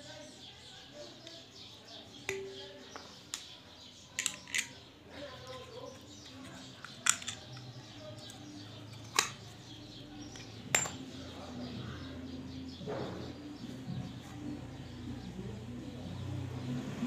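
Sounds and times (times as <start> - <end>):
metal clicks and clinks: 4.2 - 5.7, 6.4 - 9.5, 10.3 - 11.0.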